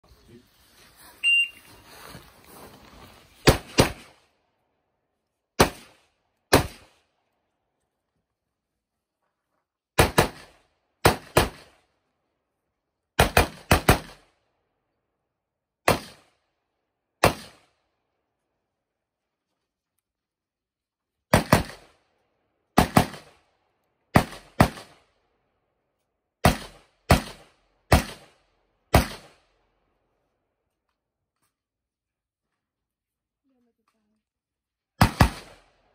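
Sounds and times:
rifle shots: 0:03.4 - 0:04.2, 0:05.6 - 0:07.0, 0:10.0 - 0:11.8, 0:13.2 - 0:14.3, 0:15.9 - 0:16.3, 0:17.2 - 0:17.7, 0:21.3 - 0:21.9, 0:22.8 - 0:23.4, 0:24.1 - 0:25.0, 0:26.4 - 0:29.5, 0:35.0 - 0:35.8.

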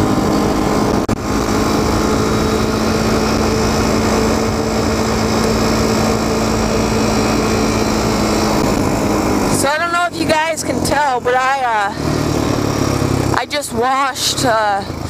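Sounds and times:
atv engine running: 0:00.0 - 0:15.0
road and wind noise: 0:00.0 - 0:15.0.

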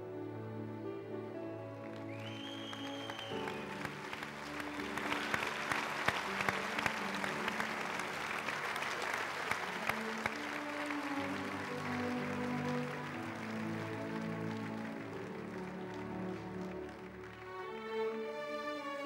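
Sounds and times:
instrumental background music: 0:00.0 - 0:19.0
audience applauding: 0:01.7 - 0:19.0
high whistle: 0:02.1 - 0:04.0.

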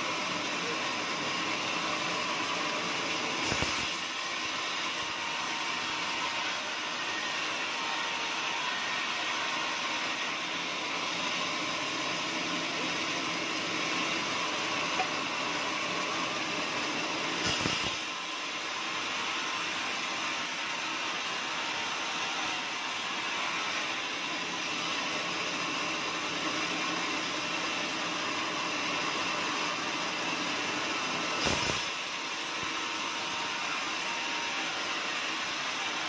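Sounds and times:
band saw cutting wood: 0:03.3 - 0:25.1, 0:30.0 - 0:36.0.

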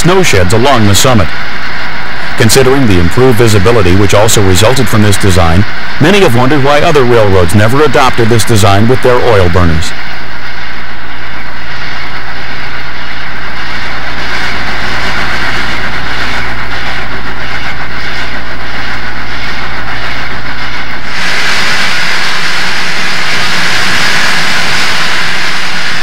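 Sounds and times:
steam locomotive rumble and hiss: 0:02.1 - 0:10.0, 0:21.0 - 0:26.0.

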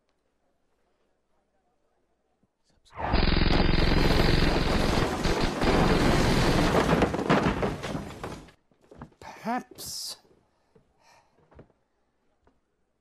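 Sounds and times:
rapid automatic gunfire: 0:03.0 - 0:07.1.

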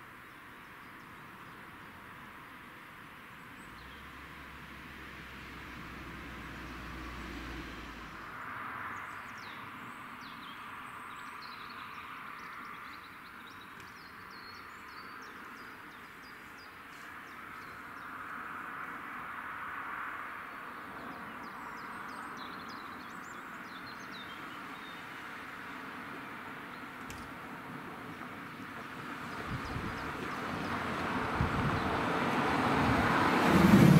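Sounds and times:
small birds chirping: 0:09.0 - 0:18.4, 0:20.5 - 0:32.3
outdoor rushing noise: 0:27.1 - 0:33.9.

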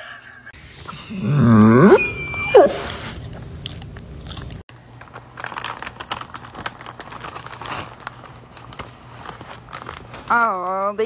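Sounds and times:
dog rising call: 0:00.9 - 0:03.2
paper bag crinkling: 0:03.1 - 0:11.0.

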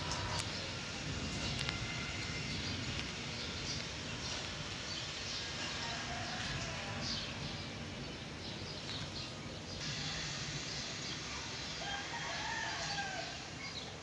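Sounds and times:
rain hiss: 0:00.0 - 0:14.0
rooster crowing: 0:05.6 - 0:07.3, 0:11.7 - 0:13.6.

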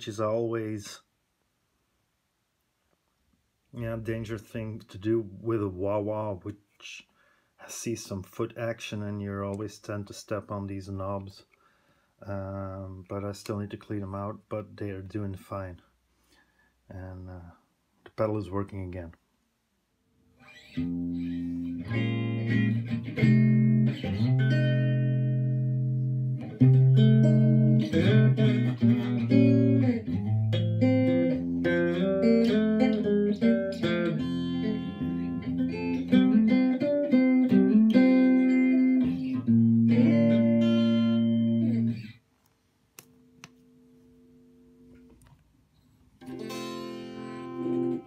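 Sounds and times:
faint amp hum: 0:00.0 - 0:48.0
electric guitar with wah: 0:20.4 - 0:42.2, 0:46.2 - 0:48.0.

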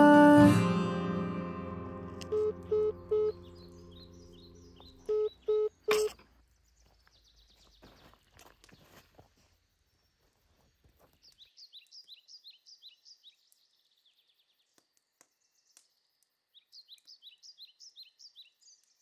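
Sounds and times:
song's final chord ringing: 0:00.0 - 0:04.7
electronic telephone beeps: 0:02.2 - 0:03.4, 0:05.1 - 0:06.0
faint birds chirping: 0:02.3 - 0:19.0.

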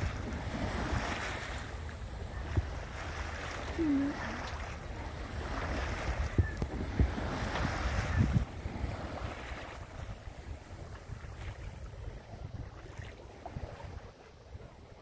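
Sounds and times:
low thumps of wind buffeting: 0:00.0 - 0:02.9, 0:04.8 - 0:12.8
sea water washing past hull: 0:00.0 - 0:15.0
wind on microphone: 0:00.0 - 0:15.0.

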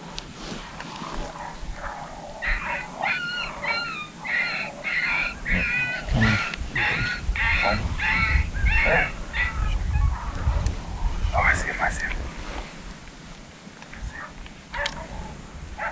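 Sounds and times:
electronic coyote yelps: 0:01.8 - 0:10.1.

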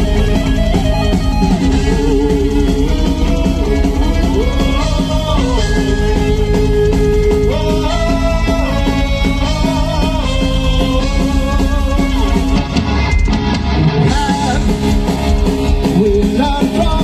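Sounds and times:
heavy metal band playing: 0:00.0 - 0:17.0
man singing: 0:01.5 - 0:12.7, 0:14.0 - 0:14.9, 0:15.7 - 0:17.0.

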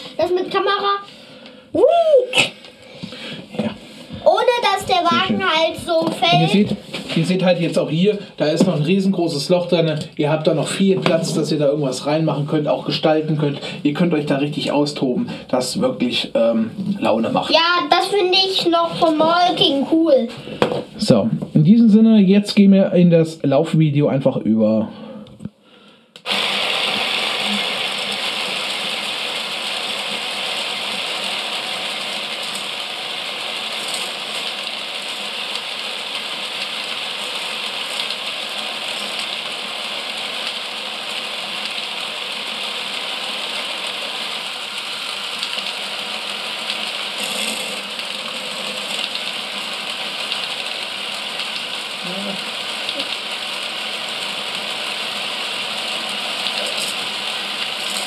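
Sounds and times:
toy roller coaster running: 0:26.3 - 0:39.9, 0:41.9 - 0:51.4, 0:52.8 - 0:58.0.

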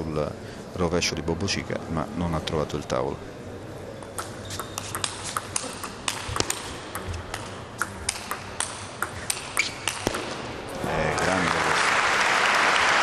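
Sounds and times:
table tennis ball hits: 0:04.1 - 0:10.6.

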